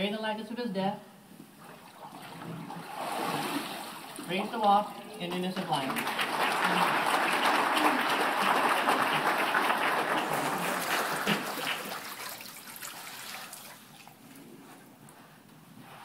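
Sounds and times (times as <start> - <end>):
crowd applauding: 5.6 - 12.5
water sloshing: 10.1 - 15.0.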